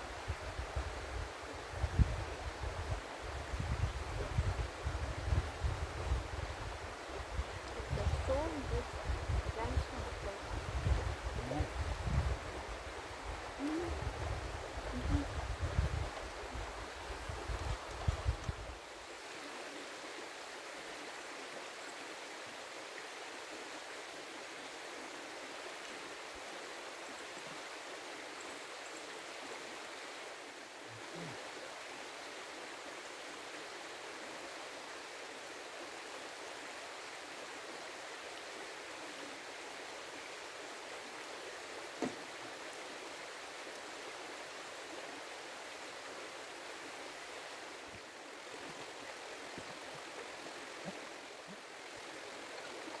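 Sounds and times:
water rushing over stones: 0:12.6 - 0:53.0
brief knock: 0:42.0 - 0:42.2.

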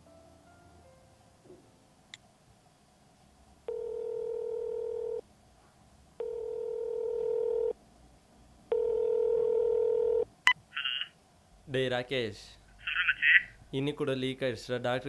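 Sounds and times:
telephone ringback tone: 0:03.7 - 0:05.2, 0:06.2 - 0:07.8, 0:08.7 - 0:10.2.

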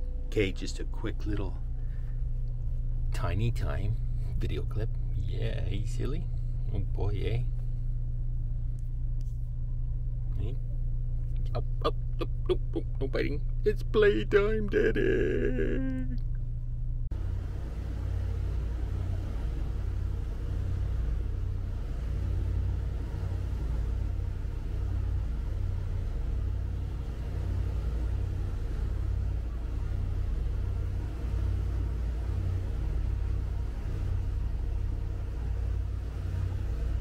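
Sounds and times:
boat engine rumble: 0:00.0 - 0:37.0
water rushing along hull: 0:17.2 - 0:37.0.

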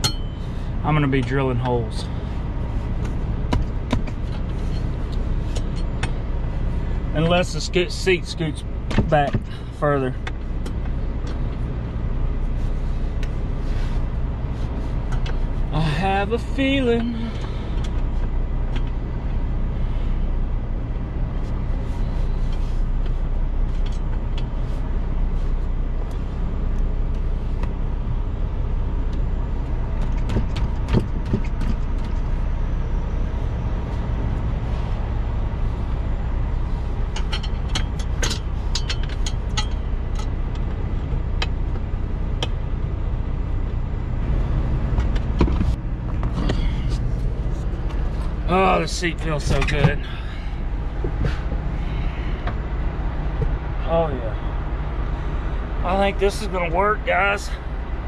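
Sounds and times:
diesel truck engine idling: 0:00.0 - 0:58.0
metal clicks and clanks: 0:37.1 - 0:40.7.

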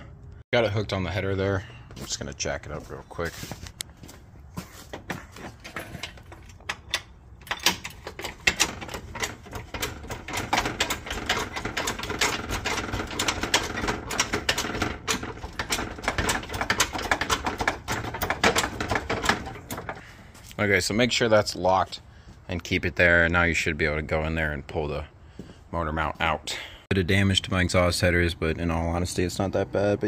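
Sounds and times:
hydraulic hoist clicking and creaking: 0:04.9 - 0:20.1.

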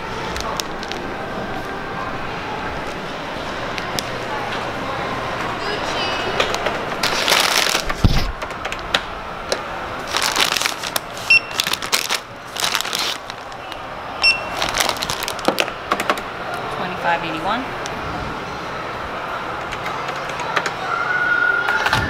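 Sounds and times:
plastic bags crinkling: 0:00.2 - 0:01.7, 0:07.0 - 0:08.3, 0:10.0 - 0:15.8
barcode scanner beeps: 0:11.3 - 0:11.6, 0:14.2 - 0:14.6.

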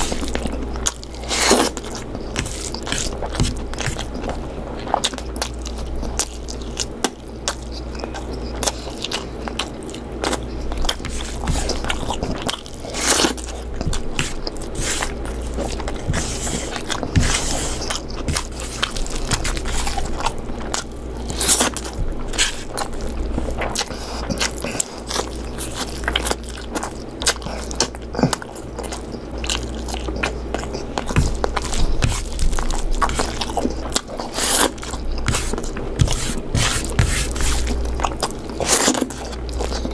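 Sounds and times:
person chewing food: 0:00.0 - 0:39.9
steady low hum: 0:00.0 - 0:39.9.

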